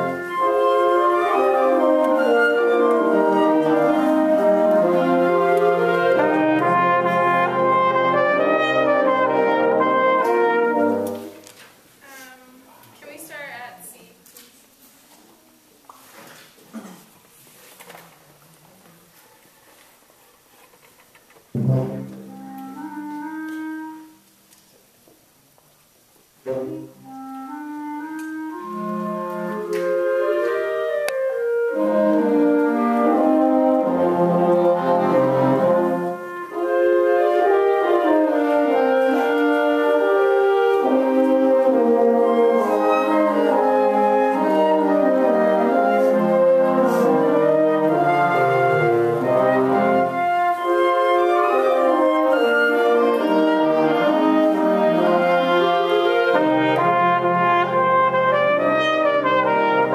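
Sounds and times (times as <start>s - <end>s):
wind ensemble playing: 0.0s - 11.5s, 21.5s - 24.4s, 26.4s - 59.9s.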